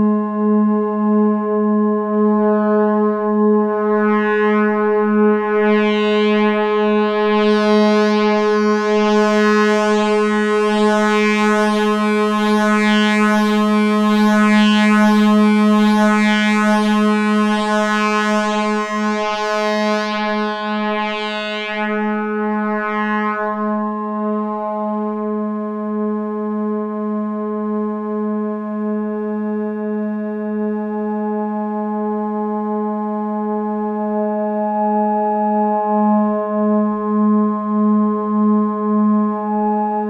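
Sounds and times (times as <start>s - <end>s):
synthesizer drone: 1.4s - 26.9s, 33.9s - 40.0s.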